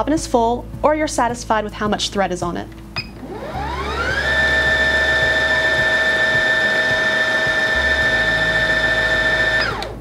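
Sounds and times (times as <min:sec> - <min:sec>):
sewing machine motor whine: 0:03.2 - 0:10.0.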